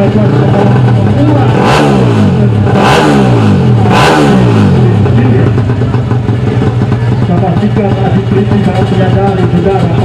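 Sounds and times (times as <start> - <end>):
motorcycle engine revving: 0.0 - 10.0
motorcycle engine fast idle: 5.1 - 10.0.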